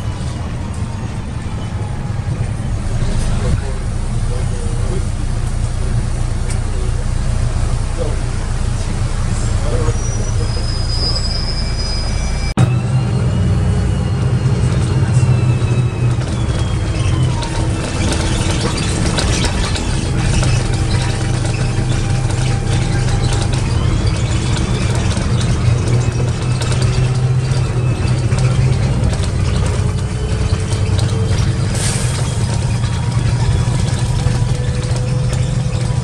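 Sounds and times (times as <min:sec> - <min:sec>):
bus engine humming: 0:00.0 - 0:36.0
drivetrain whine: 0:00.0 - 0:36.0
interior rattles: 0:14.7 - 0:36.0.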